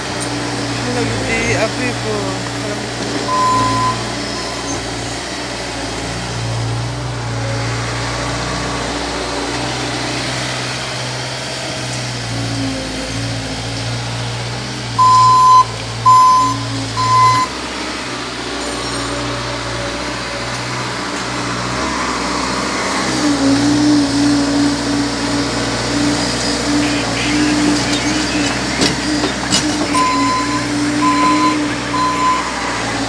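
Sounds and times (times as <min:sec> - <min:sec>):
loader diesel engine running: 0:00.0 - 0:33.0
backup alarm beeps: 0:03.3 - 0:04.8, 0:15.0 - 0:17.6, 0:29.9 - 0:32.6.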